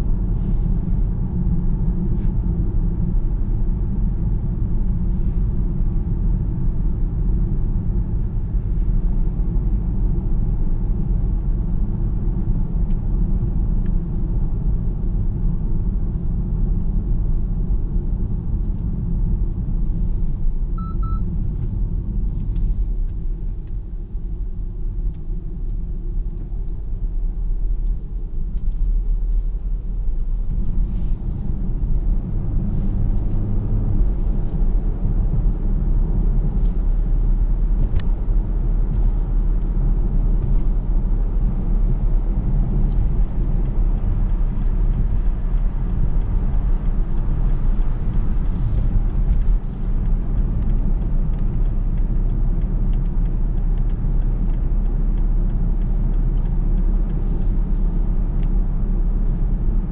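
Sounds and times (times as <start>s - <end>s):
electronic chime: 20.8s - 21.2s
tyre and road rumble: 27.6s - 59.9s.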